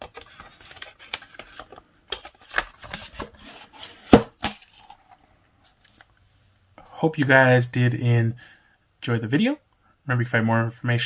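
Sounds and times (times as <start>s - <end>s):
cardboard scraping against plastic: 2.4s - 4.8s.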